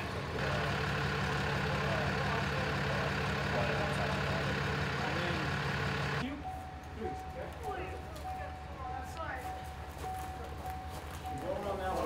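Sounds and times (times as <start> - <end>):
heavy vehicle engine idling: 0.0 - 12.0.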